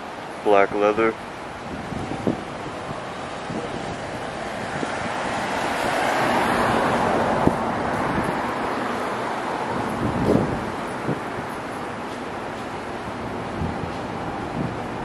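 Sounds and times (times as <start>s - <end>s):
vehicle passing: 4.4s - 11.8s.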